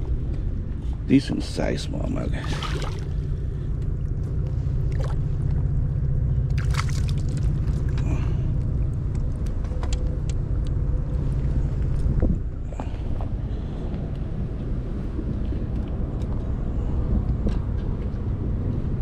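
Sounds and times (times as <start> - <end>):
wind buffeting microphone: 0.0 - 19.0
fish splashing in water: 2.4 - 3.2, 4.8 - 5.6, 6.5 - 8.2.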